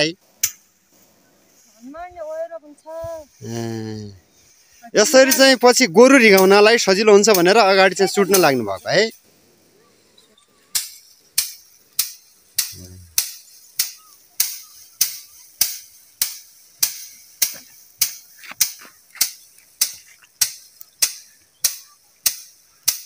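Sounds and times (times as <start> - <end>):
wooden stick whacking rice sheaves: 0.2 - 1.7, 10.7 - 23.0.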